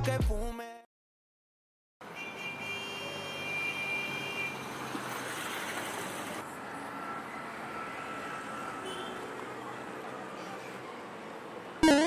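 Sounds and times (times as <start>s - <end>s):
street traffic: 2.0s - 11.8s
bus passing: 3.1s - 11.8s.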